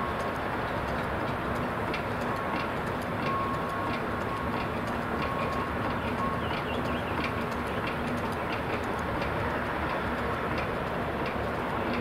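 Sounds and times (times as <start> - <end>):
crane running: 0.0 - 12.0
light ticks: 0.0 - 12.0.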